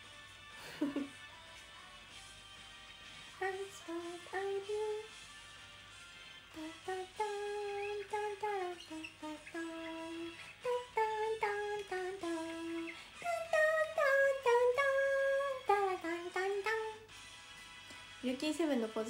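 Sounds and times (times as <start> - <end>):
woman humming: 6.6 - 16.8.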